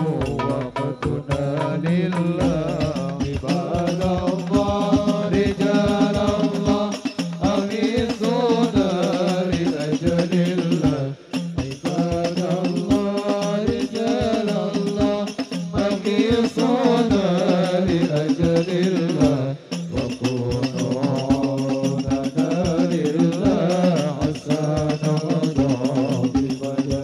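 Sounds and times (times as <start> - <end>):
frame drums beating: 0.0 - 27.0
man singing: 0.0 - 27.0.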